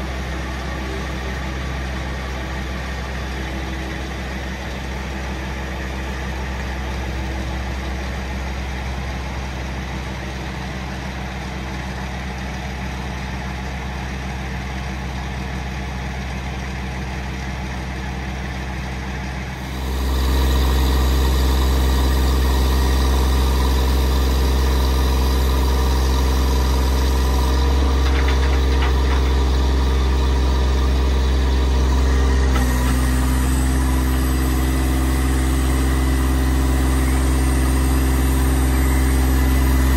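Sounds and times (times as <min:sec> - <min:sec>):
diesel engine running: 0:00.0 - 0:39.9.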